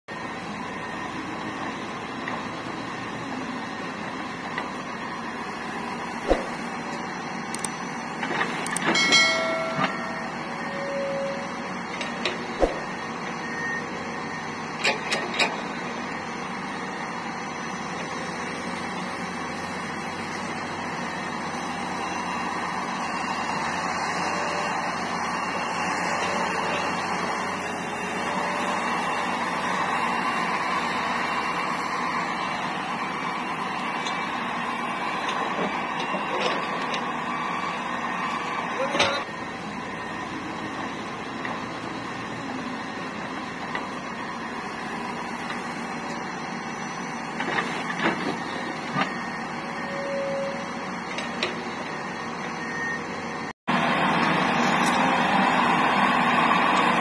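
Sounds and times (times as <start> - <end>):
excavator engine running: 0.1 - 57.0
sharp metallic clanks: 8.7 - 10.4
clatter with ringing screech: 8.8 - 12.2.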